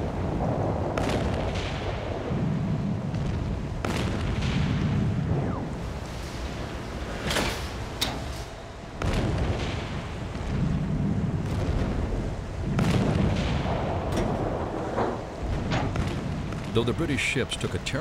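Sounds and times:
low rumble: 0.0 - 17.2
naval guns firing: 8.9 - 17.4.

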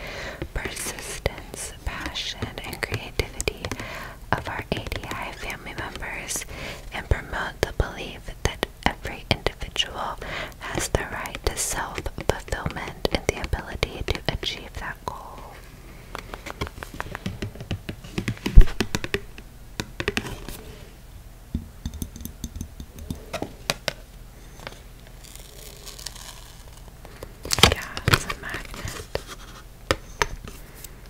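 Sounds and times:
fingernails tapping on card packaging: 4.7 - 6.0, 16.2 - 20.5.

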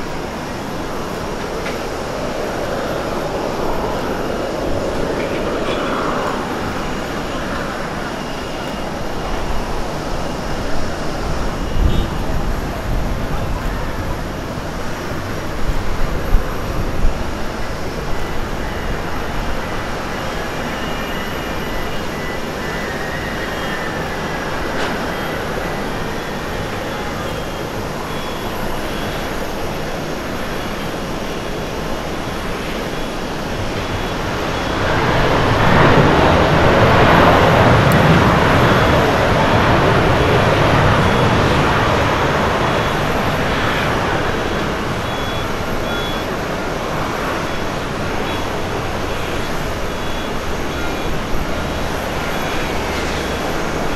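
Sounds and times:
jet engines rushing and rumbling: 0.0 - 53.9.

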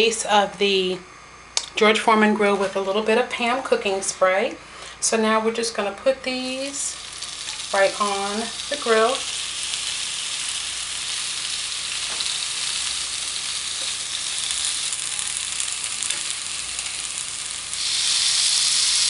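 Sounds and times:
shrimp sizzling on grill: 6.4 - 19.0.

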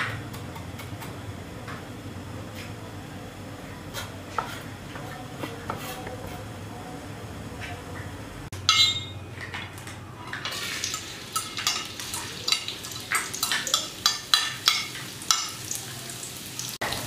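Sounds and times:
light sizzle from wok: 10.4 - 17.0.

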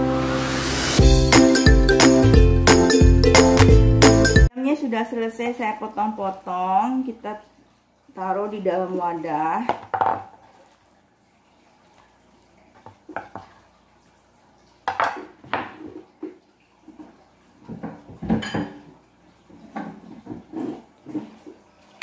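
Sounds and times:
dishes and utensils clinking: 18.2 - 18.9.

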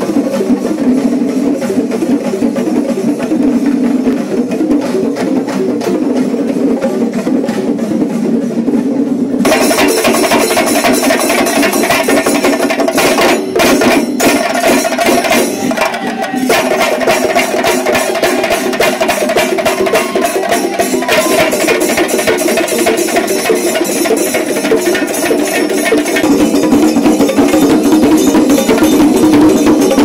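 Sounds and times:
fast dense drumming: 0.0 - 30.0
steady pitched tones: 23.6 - 30.0.

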